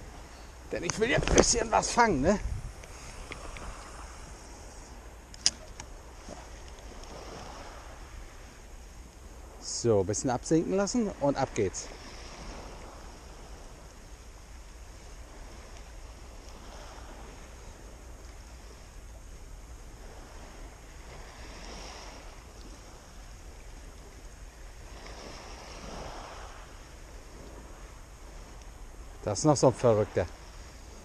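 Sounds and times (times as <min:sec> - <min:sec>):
sea water lapping: 0:00.0 - 0:31.0.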